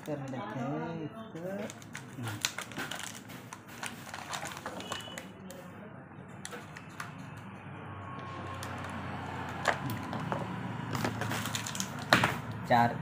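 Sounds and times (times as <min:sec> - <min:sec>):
plastic crackling: 0:00.0 - 0:00.6, 0:01.4 - 0:05.6, 0:08.4 - 0:12.4.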